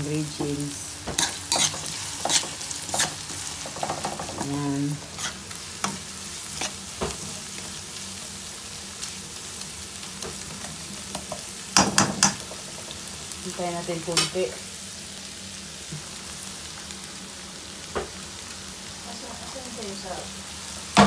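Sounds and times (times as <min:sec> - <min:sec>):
garlic and onion sizzling: 0:00.0 - 0:21.0
spatula scraping and knocking pan: 0:01.0 - 0:07.7.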